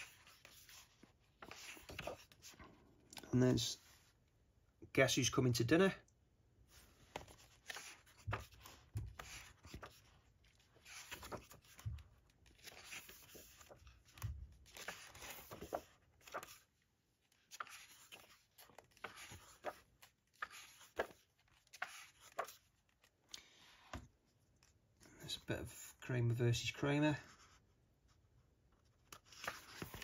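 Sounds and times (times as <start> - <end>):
pages rustling: 0.0 - 3.3, 6.7 - 24.8, 29.0 - 30.0
soft thumps of pages: 0.0 - 4.2, 6.7 - 25.1, 29.0 - 30.0.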